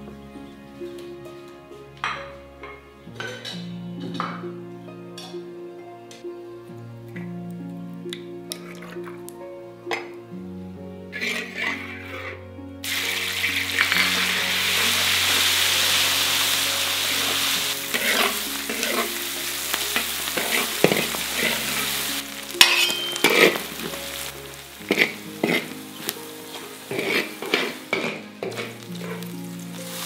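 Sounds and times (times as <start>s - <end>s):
metal ladle scraping wok: 11.1s - 30.0s
spices frying in hot oil: 12.8s - 30.0s
ladle clanking: 12.9s - 15.0s, 22.6s - 24.2s.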